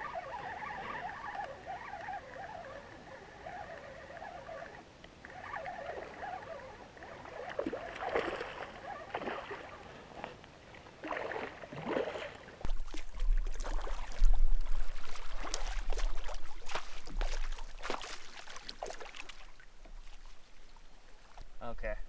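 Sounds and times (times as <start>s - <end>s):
splashes and knocks of netting: 7.4s - 9.7s, 11.0s - 20.4s.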